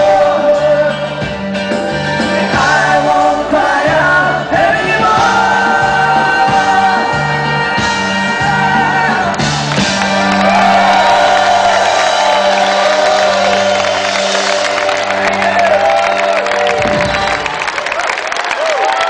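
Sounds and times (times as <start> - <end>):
live band with mandolin chords: 0.0 - 11.0
crowd cheering and whooping: 8.4 - 19.0.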